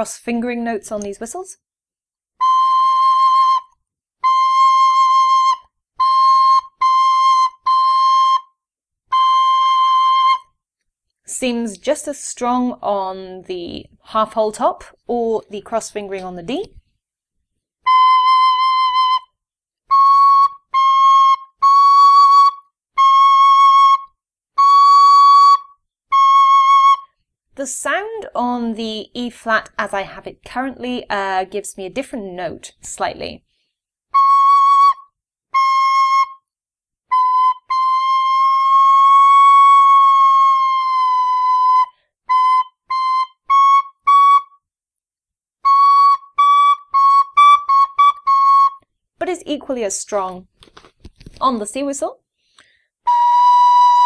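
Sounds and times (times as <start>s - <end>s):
tin whistle held notes: 2.4s - 8.5s, 9.1s - 10.5s, 17.9s - 19.3s, 19.9s - 27.2s, 34.1s - 36.4s, 37.1s - 44.6s, 45.6s - 48.9s, 53.1s - 54.0s.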